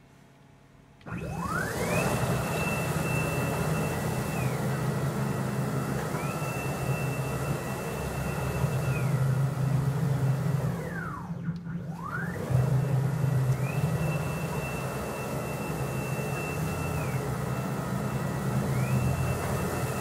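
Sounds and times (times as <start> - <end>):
stepper motors whining: 1.1 - 9.8, 10.8 - 20.0.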